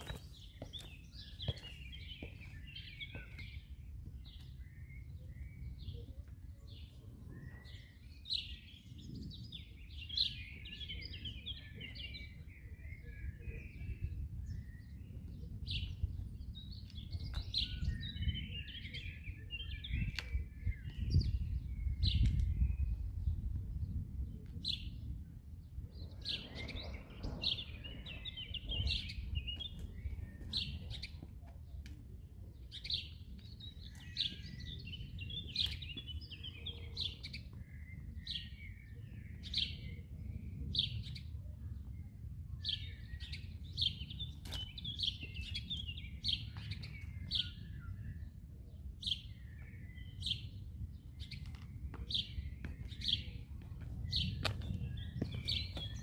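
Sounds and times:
boot heels tapping on concrete: 0.0s - 3.6s, 51.5s - 56.0s
small birds chirping: 0.0s - 56.0s.

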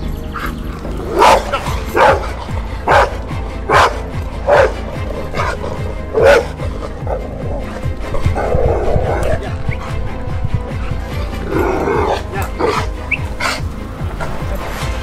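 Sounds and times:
background music: 0.0s - 15.0s
dog barking: 1.1s - 4.8s, 5.4s - 7.2s.

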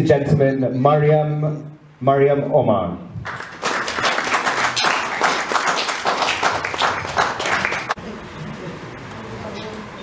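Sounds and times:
audience applauding: 3.2s - 8.0s.

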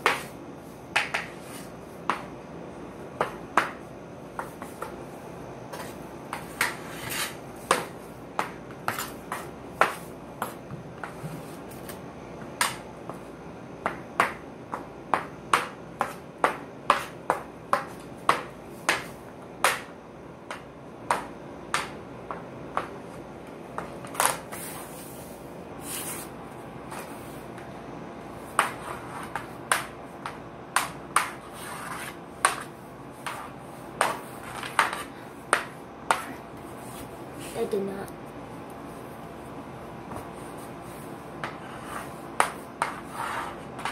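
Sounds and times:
hockey stick tapping ball: 0.0s - 0.3s, 0.9s - 1.4s, 3.2s - 5.0s, 5.8s - 11.3s, 12.4s - 13.2s, 13.8s - 23.1s, 28.5s - 36.3s, 41.4s - 43.1s.

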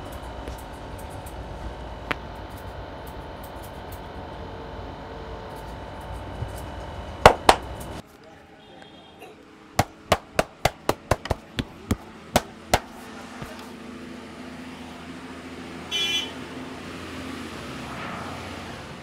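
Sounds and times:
street background noise: 0.0s - 19.0s
car horn toot: 15.9s - 16.5s.

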